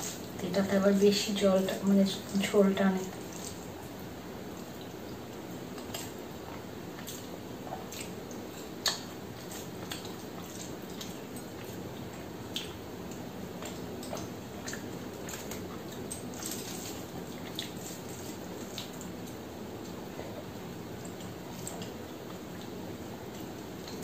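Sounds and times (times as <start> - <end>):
mouth clicks and lip smacks: 5.7 - 11.8, 12.5 - 16.3.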